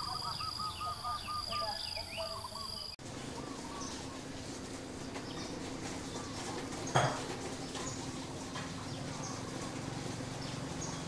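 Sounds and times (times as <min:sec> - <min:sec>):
faint bird chirps: 0:00.0 - 0:04.2.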